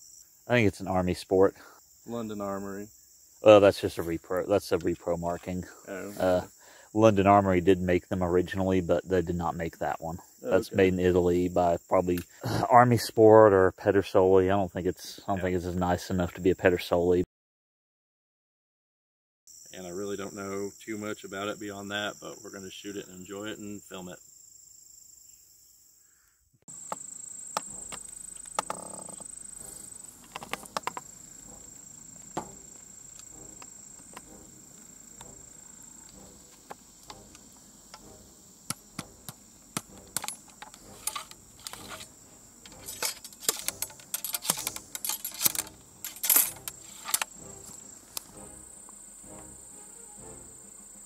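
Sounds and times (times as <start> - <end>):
high insect buzz: 0.0 - 16.3, 19.5 - 51.0
ramrod clicking in rifle barrel: 42.7 - 47.3.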